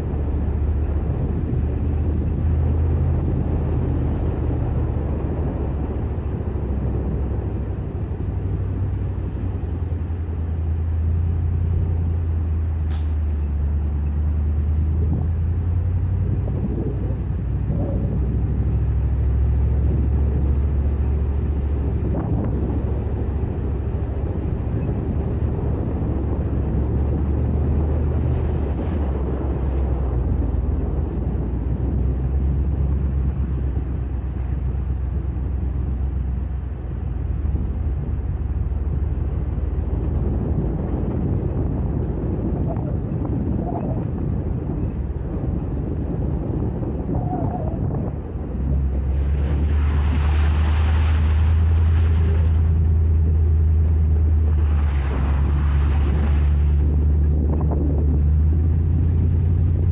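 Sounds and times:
truck engine rumble: 0:00.0 - 0:59.9.

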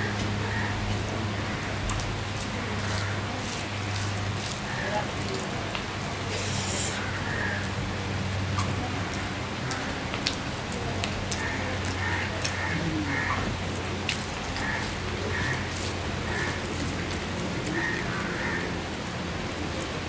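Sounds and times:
steady rain falling: 0:00.0 - 0:20.0
wet clicks of rice mixed by hand: 0:00.1 - 0:06.4, 0:07.4 - 0:18.2
close chewing: 0:01.8 - 0:07.0, 0:09.1 - 0:17.8.

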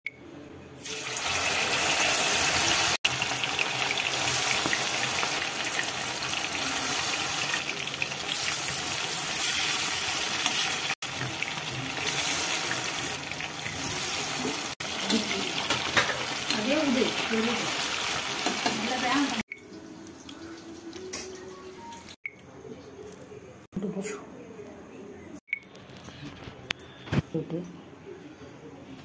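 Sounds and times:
oil sizzling in a wok: 0:00.8 - 0:20.6.

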